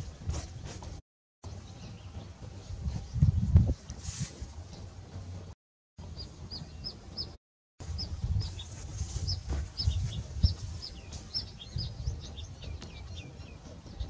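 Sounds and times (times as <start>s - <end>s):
small birds chirping: 1.5s - 3.5s, 6.0s - 14.0s.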